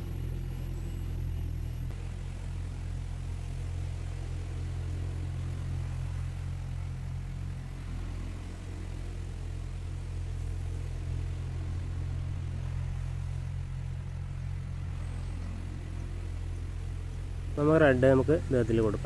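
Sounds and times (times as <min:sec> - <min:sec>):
tractor engine droning: 0:00.0 - 0:19.0.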